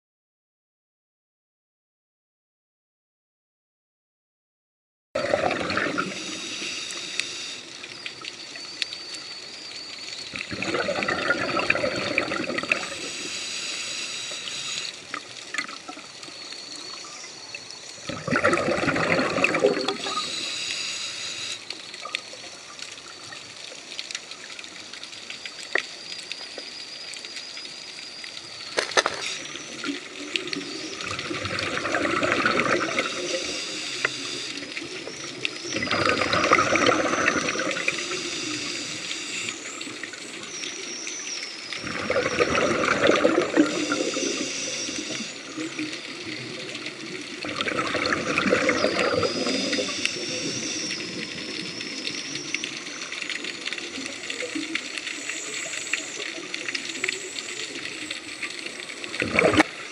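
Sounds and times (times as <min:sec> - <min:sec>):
scuba bubbles gurgling: 0:05.2 - 0:59.9
quiet hiss: 0:05.8 - 0:10.5, 0:11.3 - 0:18.1, 0:19.6 - 0:47.4.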